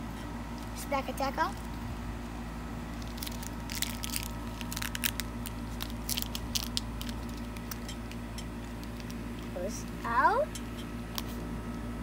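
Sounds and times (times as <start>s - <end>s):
foil wrapper crinkling and tearing: 2.8s - 10.0s, 11.1s - 11.5s.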